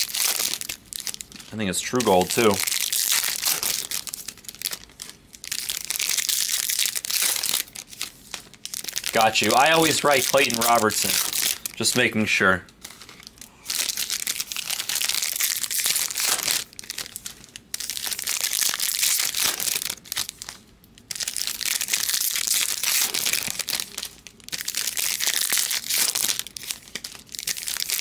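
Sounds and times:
foil wrappers crinkling: 0.0 - 28.0.

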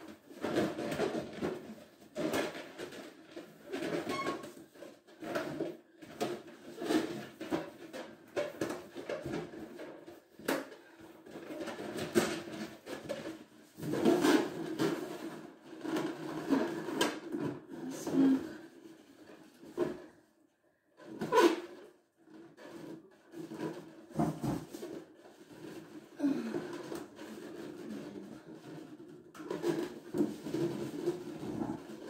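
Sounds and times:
balloons rubbing and squeaking: 21.0 - 21.8, 22.6 - 32.0.

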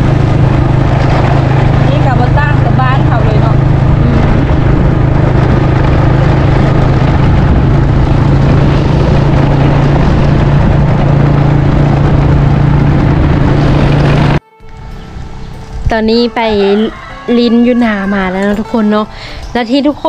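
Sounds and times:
motorbike engine running: 0.0 - 20.0
wind rush on microphone: 0.0 - 20.0.

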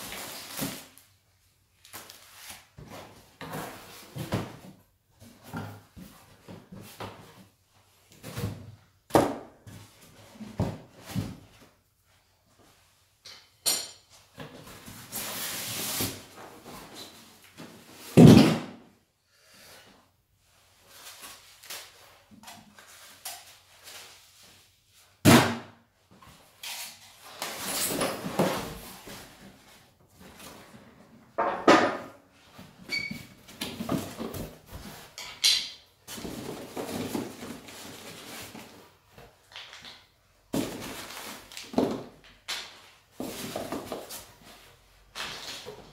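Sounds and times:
polystyrene foam rustling: 0.0 - 1.1.

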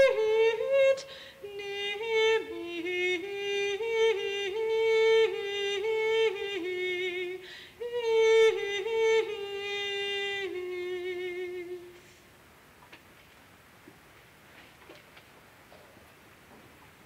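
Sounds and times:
high voice singing unaccompanied: 0.0 - 12.0
singer breathing in: 1.1 - 1.4, 7.4 - 7.8.

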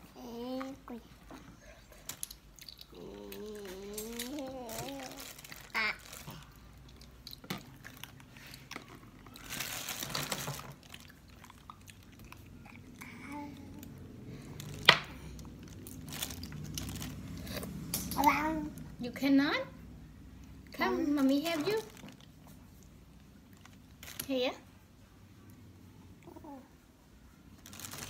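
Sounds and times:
toddler chewing: 0.2 - 18.7.

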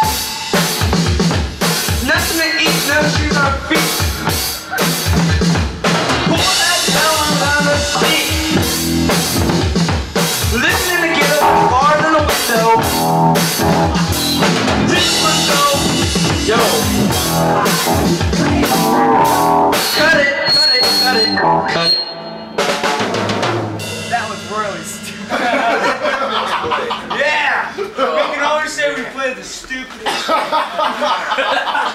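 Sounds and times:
drum kit beat: 0.0 - 27.6
voice through microphone: 10.6 - 13.0, 14.9 - 19.4.

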